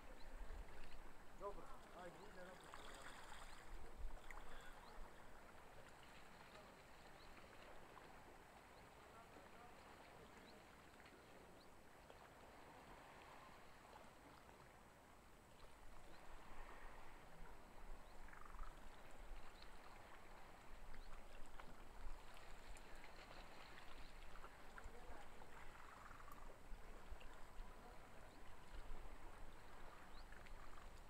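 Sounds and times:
soft water-like hiss: 0:00.6 - 0:08.1.

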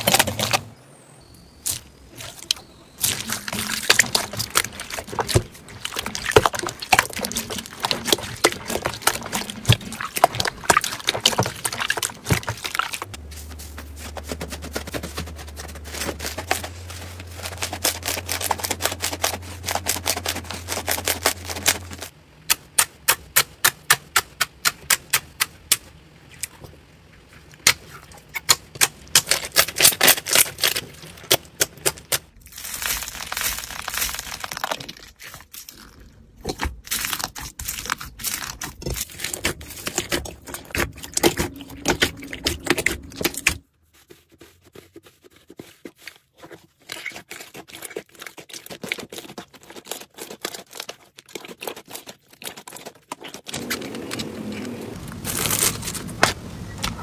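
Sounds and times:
slime squishing and crackling: 0:00.0 - 0:00.7, 0:01.6 - 0:25.8, 0:27.4 - 0:57.0
low hum: 0:00.0 - 0:22.4, 0:38.8 - 0:43.6.

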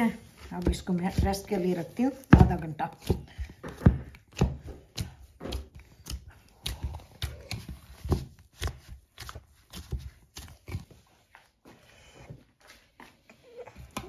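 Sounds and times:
hands kneading dough: 0:00.0 - 0:14.0
dull thuds of dough pressing: 0:00.3 - 0:11.4.

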